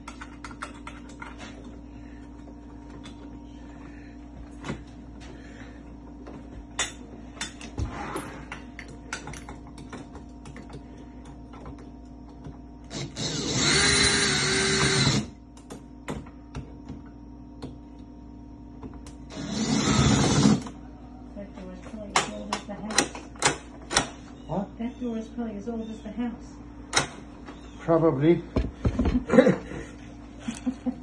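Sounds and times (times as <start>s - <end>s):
cordless drill running: 12.8s - 15.4s, 19.3s - 20.7s.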